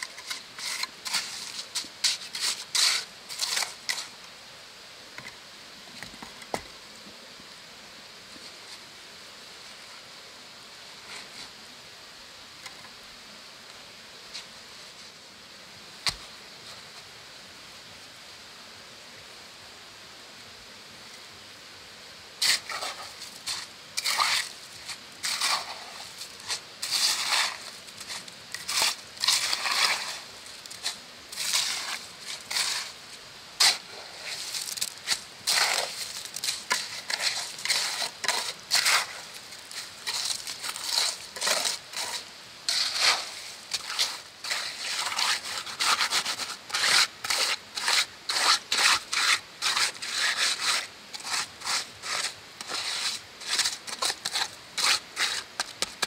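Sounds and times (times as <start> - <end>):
trowel scraping wet concrete: 0.0 - 4.2, 22.4 - 33.0, 33.6 - 56.0
steady background hiss: 0.0 - 56.0.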